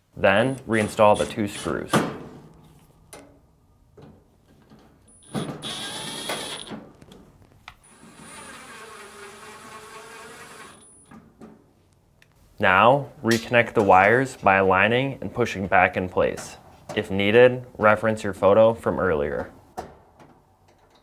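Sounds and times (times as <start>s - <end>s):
power driver whining: 5.2s - 6.8s.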